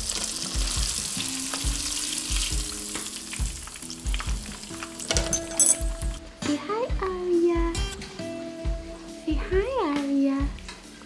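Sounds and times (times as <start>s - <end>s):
fish frying in hot fat: 0.0s - 5.2s.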